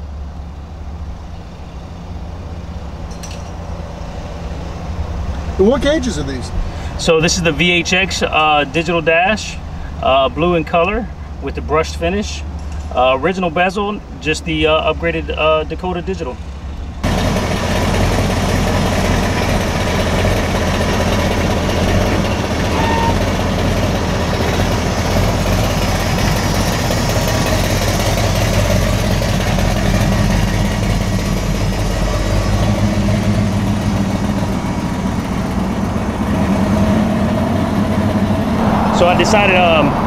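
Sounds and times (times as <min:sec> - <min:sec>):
car engine idling: 0:00.0 - 0:40.0.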